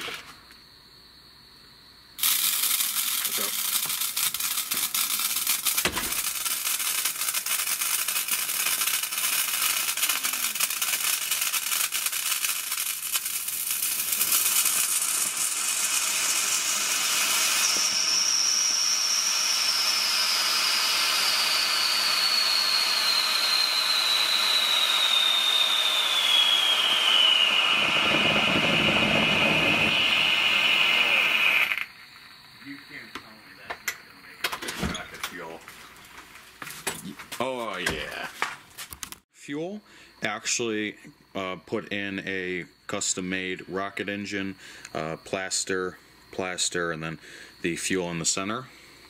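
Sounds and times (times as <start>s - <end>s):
rocket fuel jet hissing: 2.2s - 32.0s
high whistle gliding down: 5.1s - 34.3s
low rumble: 27.6s - 31.4s.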